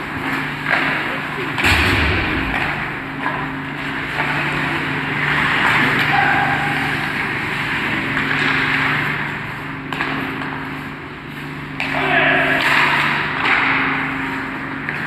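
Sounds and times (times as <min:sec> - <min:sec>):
steady low hum: 0:01.6 - 0:04.4
hockey sticks clacking: 0:11.8 - 0:14.0.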